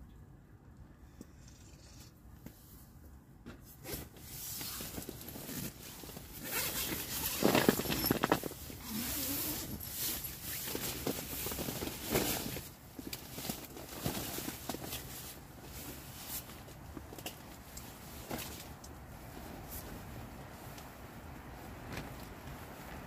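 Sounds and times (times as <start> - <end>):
nylon fabric rustling: 3.8 - 23.0
tent zipper rasping: 4.6 - 11.6.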